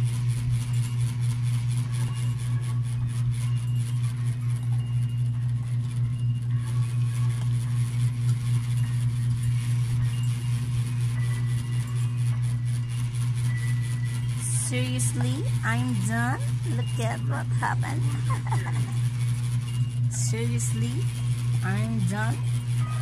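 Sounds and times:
electric fan humming: 0.0 - 23.0.

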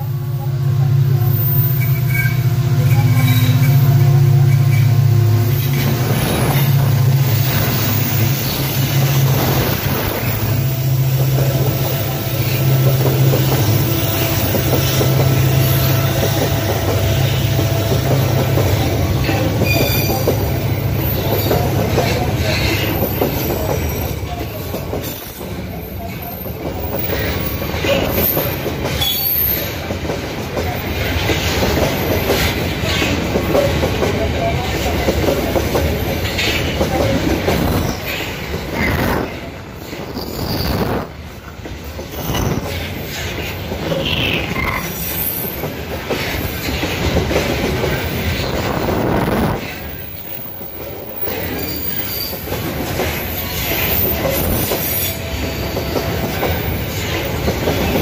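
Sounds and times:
diesel locomotive engine drone: 0.0 - 58.0
train wheels squealing: 1.2 - 4.9, 5.5 - 10.9, 19.2 - 29.9, 39.8 - 41.0, 42.1 - 46.8, 49.7 - 58.0
train wheels clacking over rail joints: 1.7 - 58.0.

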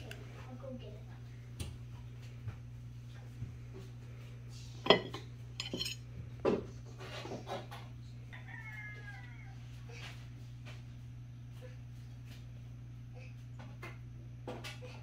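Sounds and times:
metal utensils clinking on baking sheet: 4.8 - 6.0.

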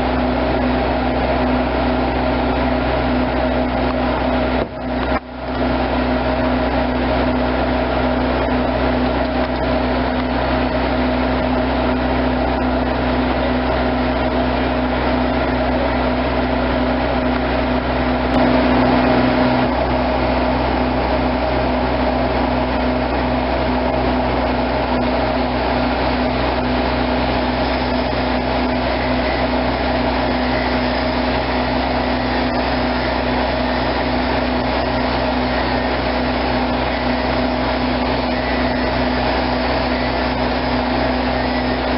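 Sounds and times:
heavy equipment engine running: 0.0 - 41.9.

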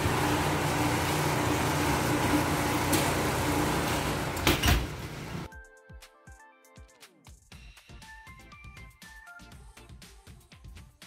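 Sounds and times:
oven rushing hum: 0.0 - 5.5.

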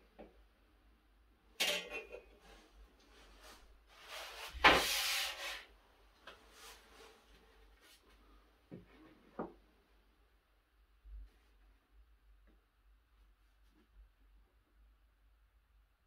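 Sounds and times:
tool scraping board: 4.1 - 5.7.

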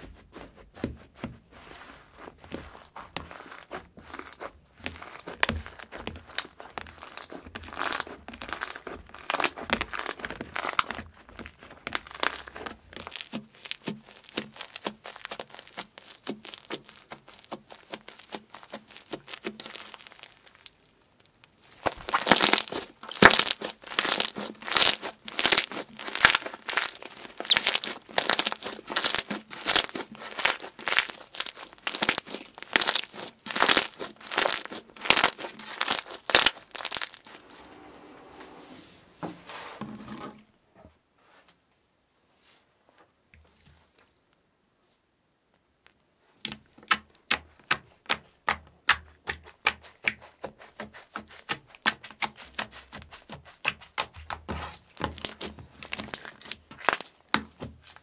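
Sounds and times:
slime squishing: 0.7 - 37.5, 46.4 - 58.0
slime crackling and clicking: 5.0 - 11.0, 11.9 - 37.4, 55.0 - 58.0.

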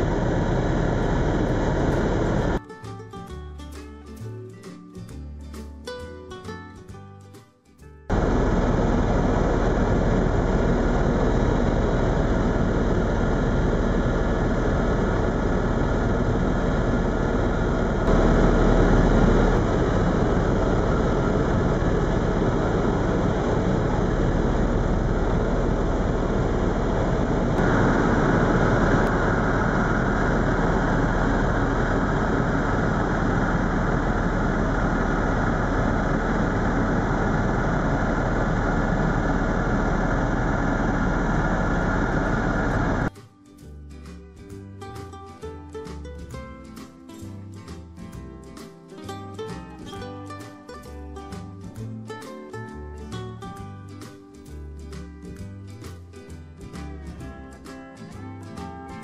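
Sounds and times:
helicopter turbine and rotor noise: 0.0 - 2.6, 8.1 - 43.1.

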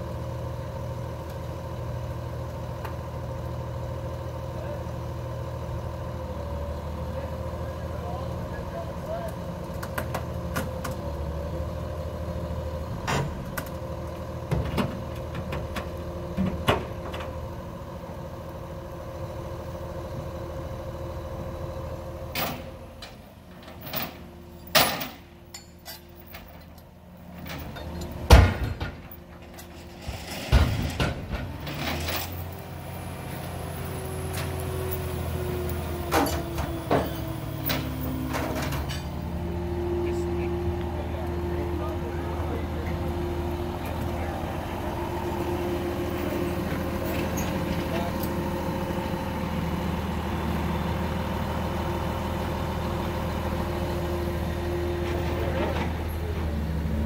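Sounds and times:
heavy diesel engine running: 0.0 - 57.0
metal clanks and knocks: 22.4 - 32.4, 36.0 - 39.2.

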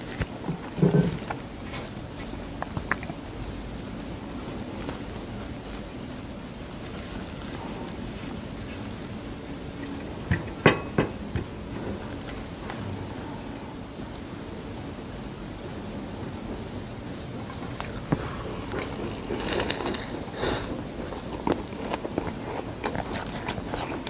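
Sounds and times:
seaweed sheets crackling: 11.5 - 24.0.

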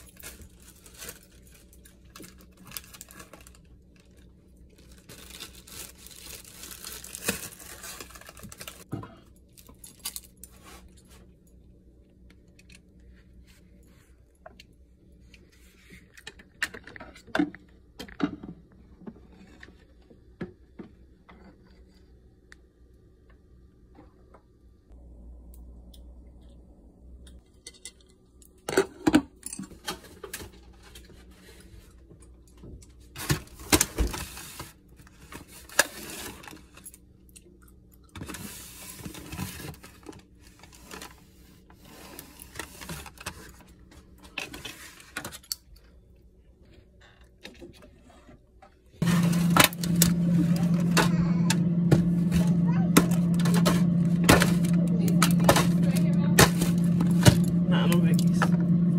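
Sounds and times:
kitchen items knocking and clattering: 49.0 - 58.8.

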